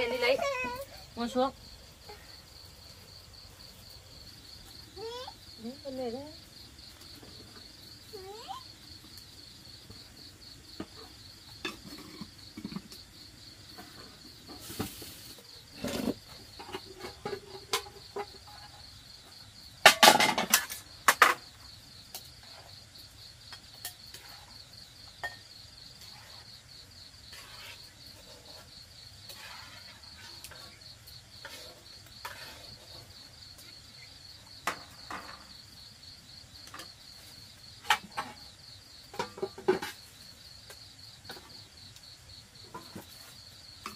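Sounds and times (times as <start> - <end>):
crickets chirring: 0.0 - 43.9.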